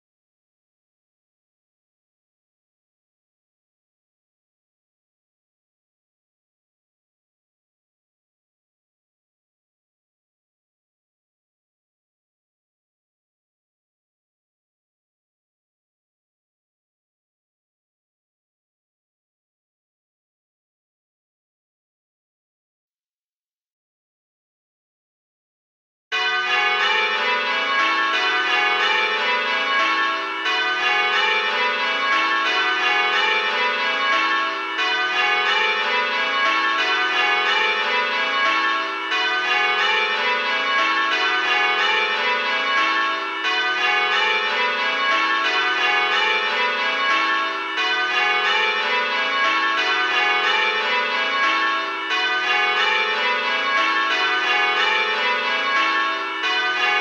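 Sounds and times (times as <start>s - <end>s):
tower bells ringing: 26.1s - 57.0s.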